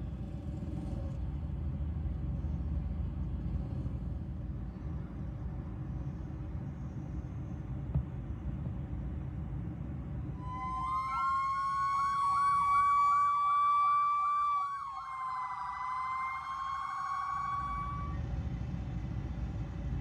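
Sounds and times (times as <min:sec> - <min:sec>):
rumble of passing vehicles: 0:00.0 - 0:20.0
electronic sirens yelping: 0:10.4 - 0:18.2.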